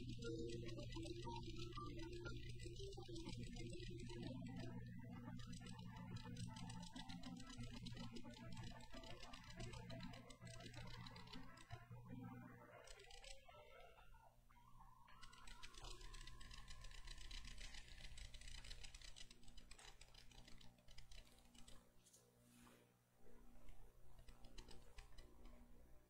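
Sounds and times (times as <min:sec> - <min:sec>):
faint clicking and rustling: 0:00.0 - 0:14.0, 0:15.1 - 0:26.0.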